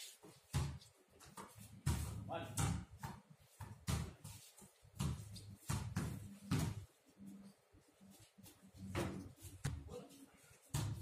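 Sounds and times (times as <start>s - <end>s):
basketballs bouncing on concrete: 0.3s - 7.0s, 8.8s - 9.9s, 10.6s - 11.0s.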